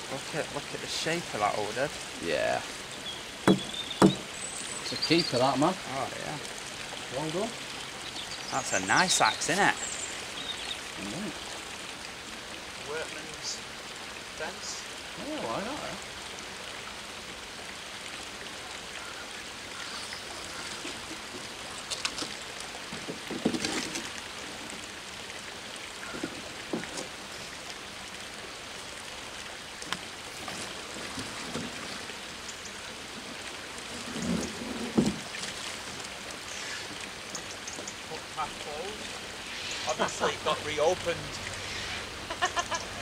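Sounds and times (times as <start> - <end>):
water splashing and dripping: 0.0 - 43.0.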